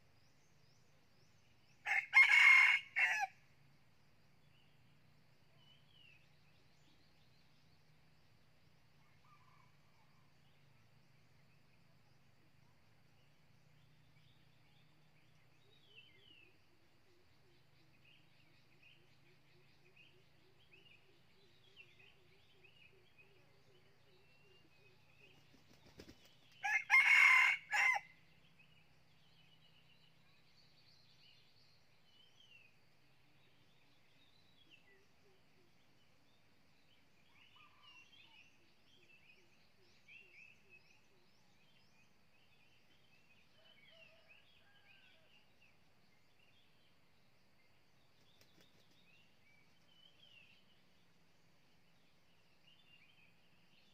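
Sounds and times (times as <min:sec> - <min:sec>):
rooster crowing: 0:01.9 - 0:03.3, 0:26.6 - 0:28.1
faint small-bird chirps: 0:09.0 - 0:26.6, 0:28.7 - 0:42.6, 0:43.5 - 0:46.9, 0:47.7 - 0:50.8
wing flap: 0:25.4 - 0:26.5.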